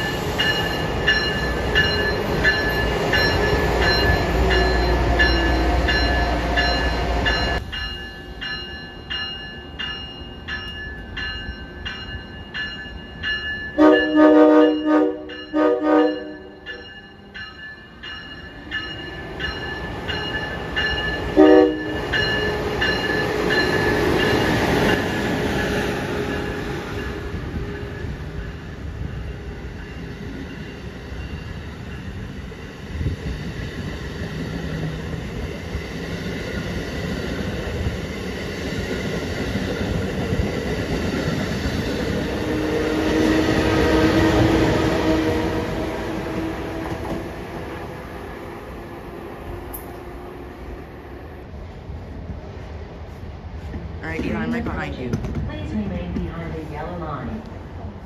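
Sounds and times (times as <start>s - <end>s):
train rumbling past: 0.0s - 58.0s
train horn blasts: 13.8s - 16.7s, 21.3s - 22.1s, 42.4s - 47.4s.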